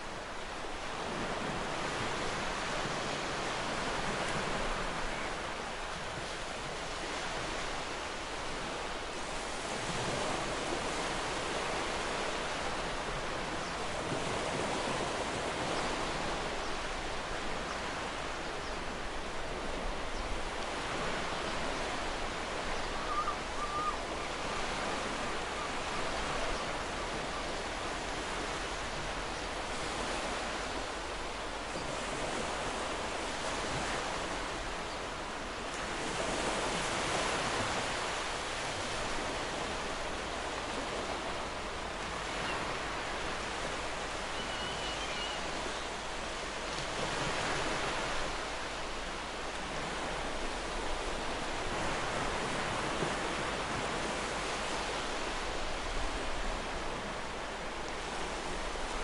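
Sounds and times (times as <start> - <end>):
ocean surf washing ashore: 0.0 - 59.0
bird chirps: 44.3 - 45.4.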